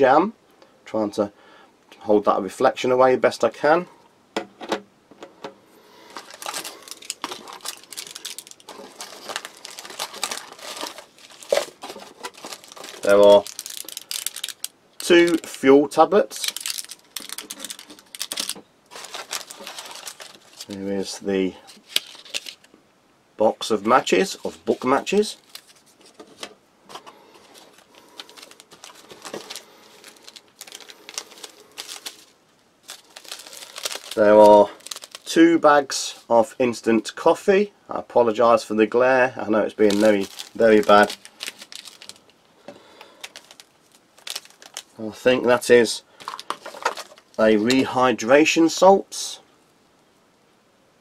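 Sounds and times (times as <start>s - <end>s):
packets rustling and crinkling: 5.9s - 22.7s, 23.7s - 35.4s, 39.6s - 47.9s.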